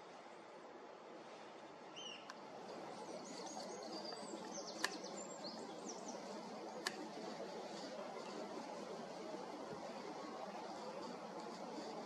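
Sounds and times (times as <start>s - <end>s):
outdoor background hiss: 0.0s - 12.0s
small birds chirping: 1.9s - 12.0s
sharp clicks: 4.7s - 5.1s, 6.7s - 7.2s.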